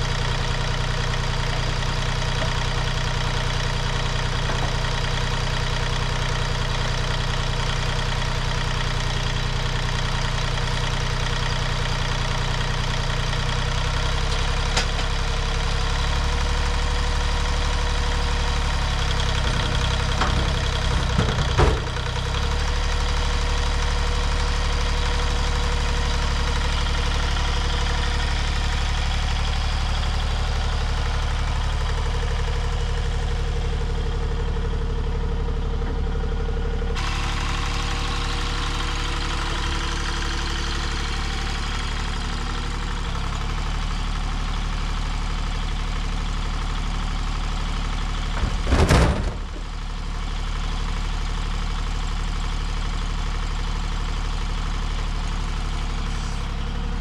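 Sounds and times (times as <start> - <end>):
excavator engine running: 0.0 - 57.0
metal clanks and knocks: 19.4 - 22.3, 48.4 - 49.8.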